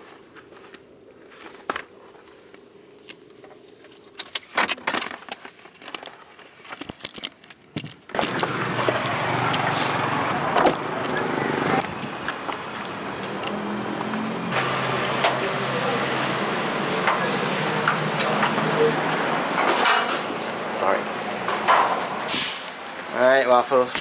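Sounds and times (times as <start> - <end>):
street traffic noise: 8.1 - 24.0.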